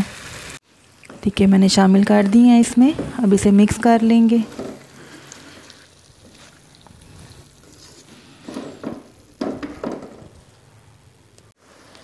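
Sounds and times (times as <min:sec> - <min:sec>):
spatula stirring gravy in a wok: 0:04.4 - 0:09.4.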